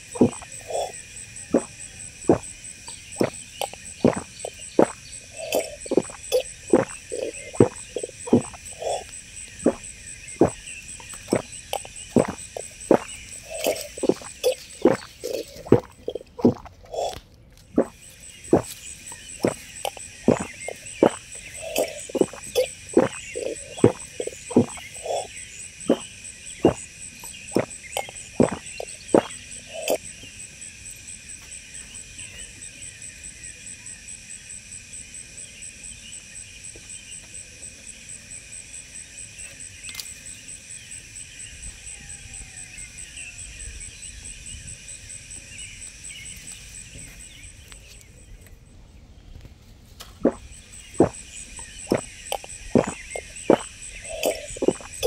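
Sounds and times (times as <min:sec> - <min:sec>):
fast pulsing buzz: 0:00.0 - 0:17.2, 0:17.8 - 0:30.0, 0:50.2 - 0:55.0
high insect chorus: 0:00.0 - 0:55.0.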